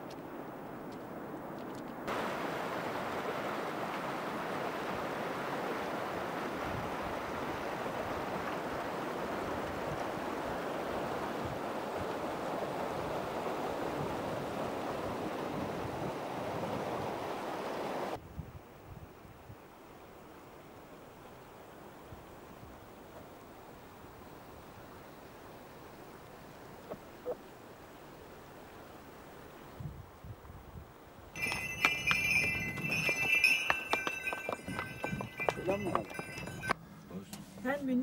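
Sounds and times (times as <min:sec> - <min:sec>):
rushing outdoor ambience: 0:00.0 - 0:18.2, 0:31.4 - 0:36.8.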